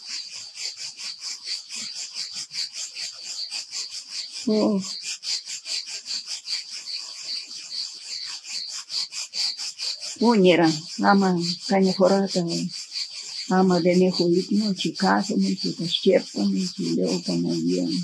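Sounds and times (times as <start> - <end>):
insects chirping: 0.0 - 18.0
woman murmuring: 4.5 - 4.9, 10.2 - 12.7, 13.5 - 18.0.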